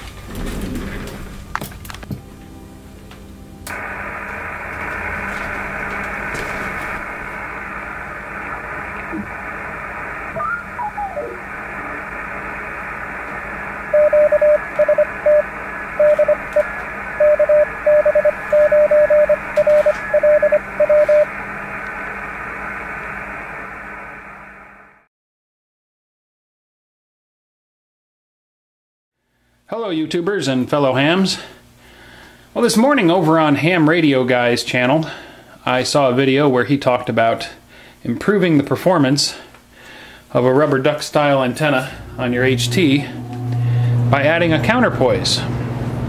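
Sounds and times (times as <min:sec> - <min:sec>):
shortwave radio hiss: 0:03.7 - 0:25.1, 0:39.1 - 0:43.7
falling radio whistle: 0:08.4 - 0:12.4, 0:13.9 - 0:21.3
morse code tone: 0:13.9 - 0:21.3.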